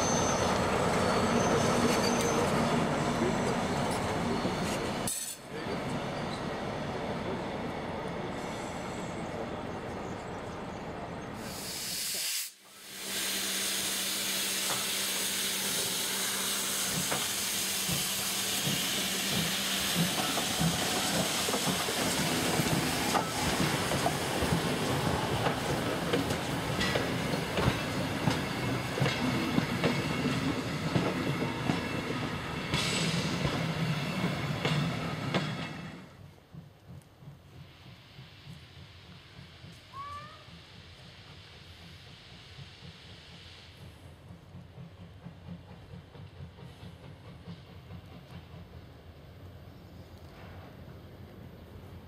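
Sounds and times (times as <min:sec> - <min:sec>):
rail yard train noise: 0:00.0 - 0:52.0
hiss of steam: 0:08.3 - 0:09.5, 0:11.3 - 0:34.0, 0:37.4 - 0:49.1.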